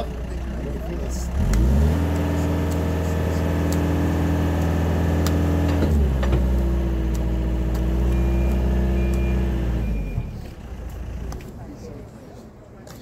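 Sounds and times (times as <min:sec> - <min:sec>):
heavy vehicle engine running: 0:00.0 - 0:12.2
faint high beeping: 0:08.1 - 0:10.6.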